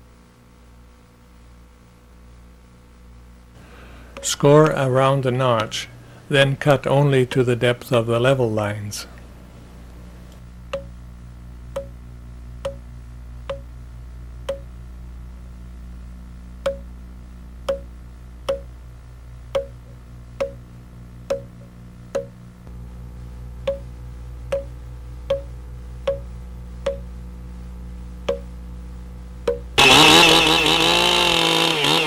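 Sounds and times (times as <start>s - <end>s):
mallet striking chisel into log: 18.5s - 18.7s, 21.3s - 21.5s, 25.3s - 25.5s, 26.1s - 26.3s, 29.5s - 29.7s.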